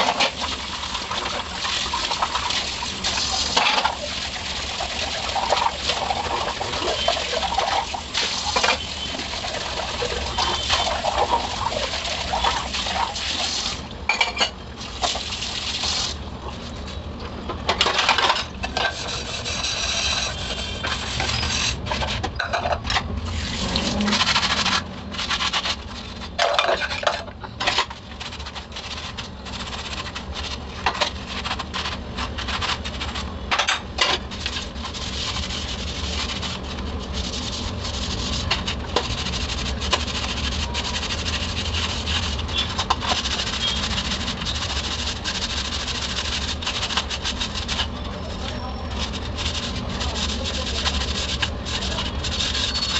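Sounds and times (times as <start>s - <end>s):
scrubber rubbing: 0.0s - 13.8s, 17.9s - 22.5s, 23.2s - 33.4s, 34.0s - 52.9s
tap water running: 0.0s - 16.8s
metal dishes clinking in sink: 14.1s - 14.6s, 22.3s - 23.0s.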